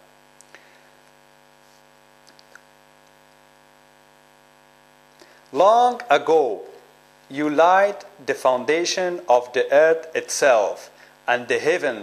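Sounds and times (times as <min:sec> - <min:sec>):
electrical mains hum: 0:00.0 - 0:12.0
faint small clicks: 0:02.2 - 0:03.2.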